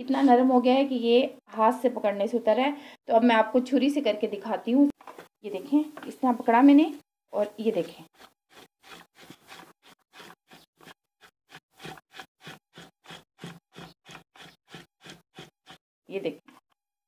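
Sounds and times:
knife scraping tripe: 7.7 - 15.8.

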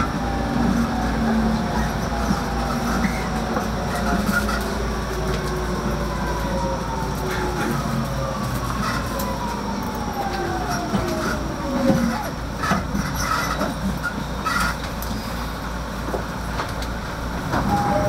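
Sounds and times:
wheels rumbling on rail: 0.0 - 18.0.

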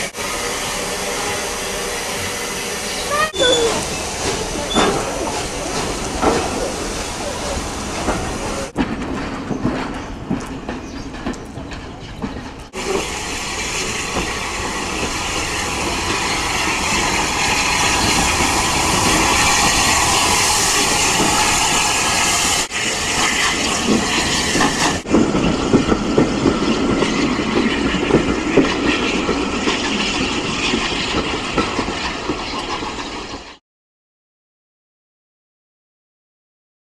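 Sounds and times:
steam hissing: 0.0 - 8.8, 12.8 - 33.0
steam locomotive knocks: 3.4 - 21.8
train wheels clattering on rails: 3.4 - 22.5, 23.2 - 33.6.

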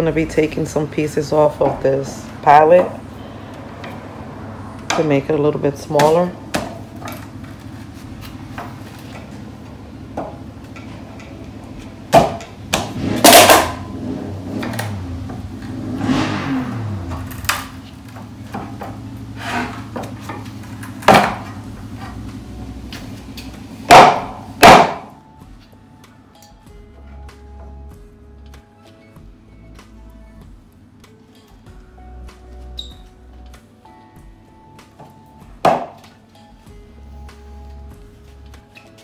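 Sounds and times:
hammer striking wooden boards: 12.1 - 13.8, 21.0 - 21.6, 23.9 - 25.1, 35.0 - 36.2.

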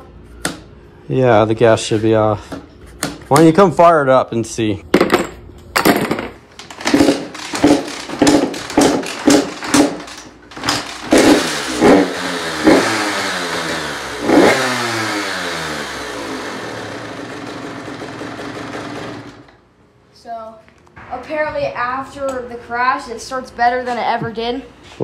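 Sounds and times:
dirt bike engine revving: 6.6 - 19.5.

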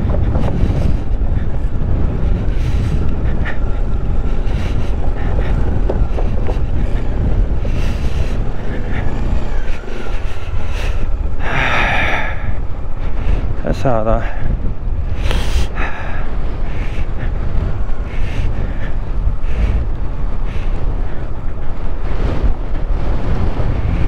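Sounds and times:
tyres on wooden deck: 0.0 - 13.8
wind rumble on microphone: 0.0 - 24.0.

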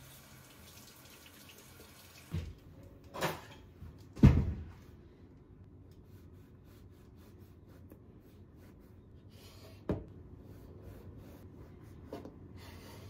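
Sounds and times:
dull knocks on kitchen counter: 4.2 - 4.7.

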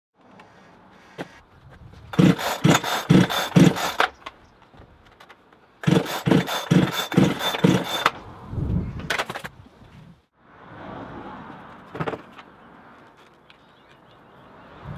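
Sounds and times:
chainsaw recoil starter pulls: 2.1 - 4.2, 5.8 - 8.2
chainsaw scraping across concrete: 2.1 - 4.2, 5.8 - 8.2.

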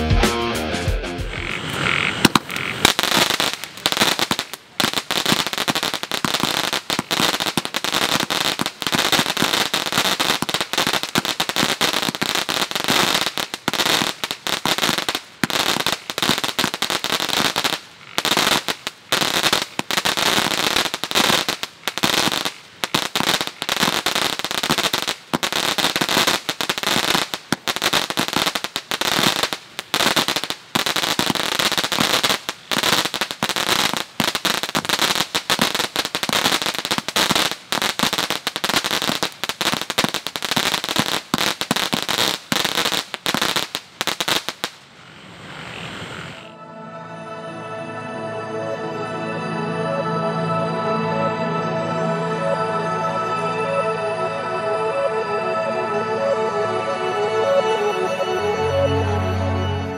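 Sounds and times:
fireworks firing and crackling: 1.6 - 46.5.

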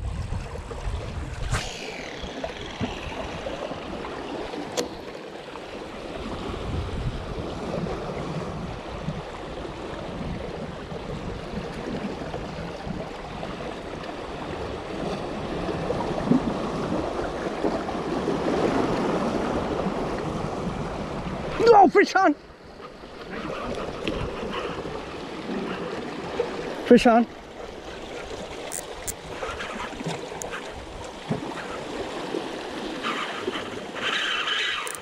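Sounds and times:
wind on microphone: 0.0 - 4.7, 6.1 - 21.7
brief falling whine: 1.3 - 4.3
sharp click: 28.7 - 29.2, 34.8 - 35.0.

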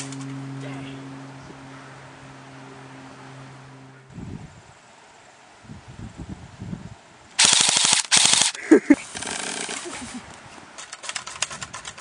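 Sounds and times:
full-auto gunfire: 7.4 - 8.6.

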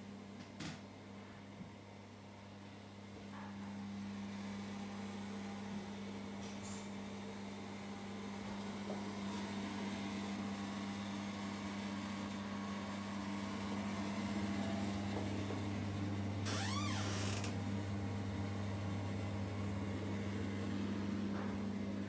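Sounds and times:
low electrical hum: 0.0 - 22.0
door hinge creaking: 16.5 - 17.5.

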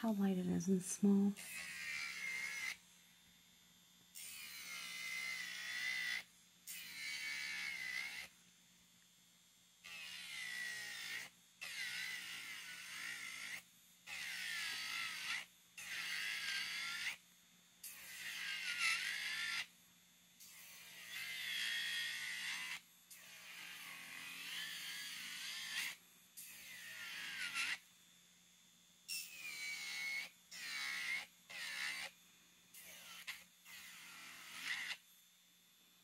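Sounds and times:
nail drill whining: 1.4 - 2.8, 4.2 - 8.3, 9.8 - 17.2, 17.9 - 19.7, 20.4 - 27.8, 29.1 - 32.2, 32.8 - 35.0.

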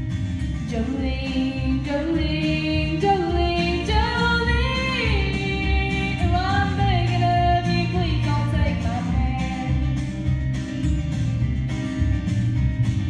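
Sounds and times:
recorded instrumental backing track: 0.0 - 13.0
woman singing into microphone: 0.7 - 10.0.

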